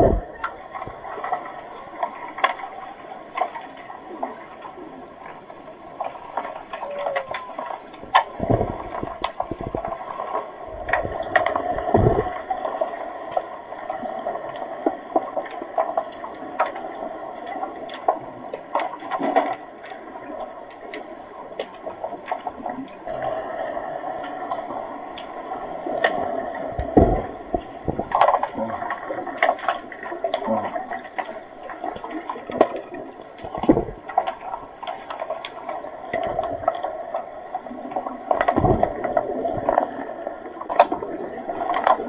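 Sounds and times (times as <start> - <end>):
underwater hiss and gurgle: 0.0 - 42.0
deep muffled thumps: 11.9 - 12.3, 26.8 - 28.1.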